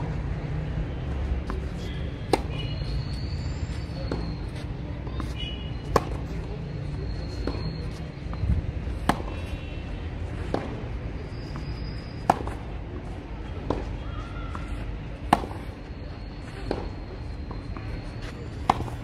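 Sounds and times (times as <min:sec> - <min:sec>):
racquets hitting tennis balls: 0:01.4 - 0:02.8, 0:05.1 - 0:06.4, 0:11.5 - 0:12.8, 0:13.6 - 0:15.9, 0:16.5 - 0:19.0.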